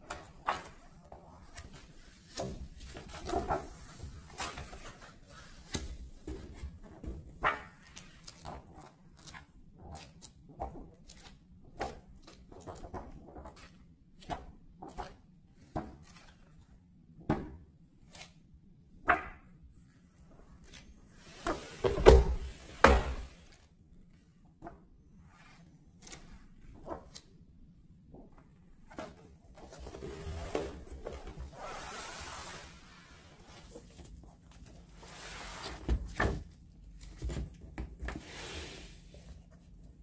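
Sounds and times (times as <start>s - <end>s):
book pages turning: 7.4s - 13.8s, 25.9s - 27.4s.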